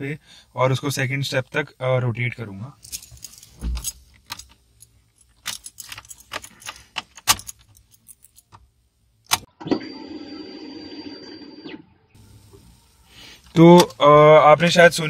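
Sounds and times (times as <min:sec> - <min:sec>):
car keys jangling and clicking: 0:02.8 - 0:08.7.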